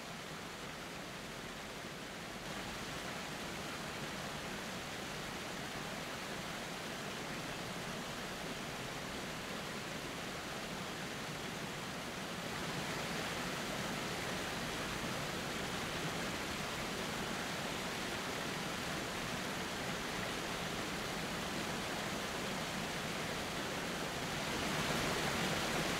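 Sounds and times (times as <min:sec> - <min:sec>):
waterfall rushing: 0:12.6 - 0:25.9.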